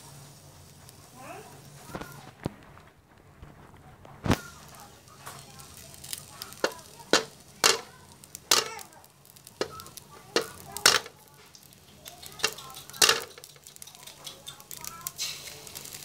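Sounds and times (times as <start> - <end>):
metal spatula striking wok: 5.8 - 7.9, 8.5 - 8.8, 9.5 - 11.1, 12.0 - 16.0.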